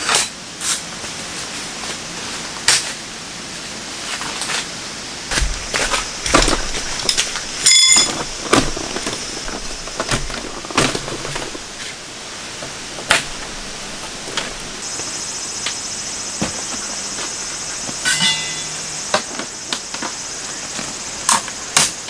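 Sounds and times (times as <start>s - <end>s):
steady high buzz: 0.6s - 22.0s
bottles set down: 5.3s - 11.8s
short ringing clink: 7.6s - 8.1s, 18.0s - 18.9s.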